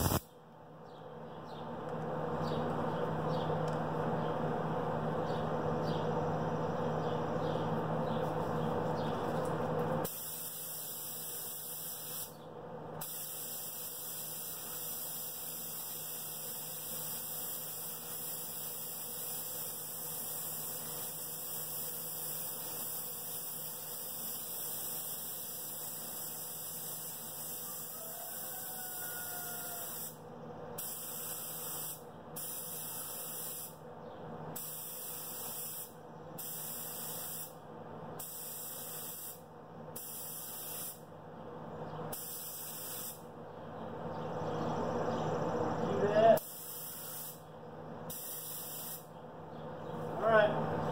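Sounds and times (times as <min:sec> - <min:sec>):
paint spray gun hissing: 0:00.0 - 0:00.2, 0:10.0 - 0:12.4, 0:13.0 - 0:27.9, 0:29.8 - 0:30.2, 0:30.8 - 0:33.8, 0:34.6 - 0:37.5, 0:38.2 - 0:39.4, 0:40.0 - 0:41.0, 0:42.1 - 0:43.2, 0:46.4 - 0:47.4, 0:48.1 - 0:49.1
steady hum: 0:00.0 - 0:27.9.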